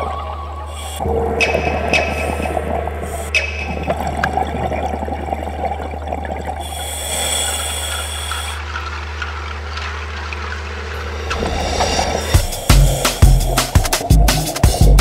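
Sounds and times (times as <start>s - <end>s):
scuba bubbles gurgling: 0.0s - 15.0s
underwater low hum: 0.0s - 15.0s
continuous crackling: 7.9s - 14.6s.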